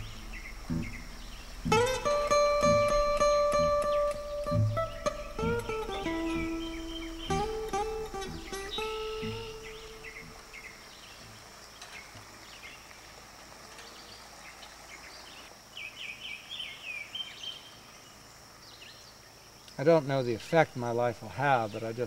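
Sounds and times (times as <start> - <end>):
bird singing chirps: 0.0 - 12.9, 13.7 - 19.8
insects droning: 0.0 - 22.0.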